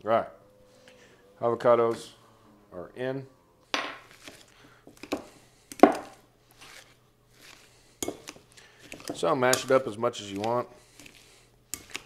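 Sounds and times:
avocado mashing in glass bowl: 0:04.1 - 0:12.0.

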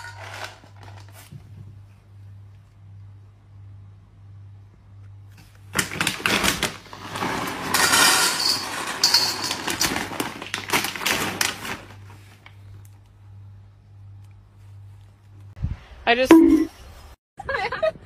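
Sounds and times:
dry kibble rattling into metal bowl: 0:00.0 - 0:01.2, 0:05.8 - 0:12.0.

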